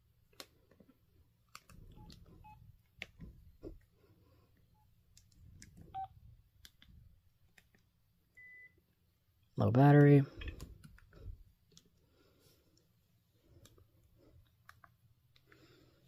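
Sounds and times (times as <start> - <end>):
phone keypad beeps: 5.9 - 6.1, 8.4 - 8.8.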